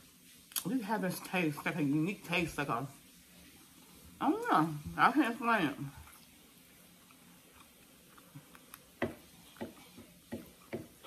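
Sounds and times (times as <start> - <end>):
person chewing food: 6.0 - 11.0.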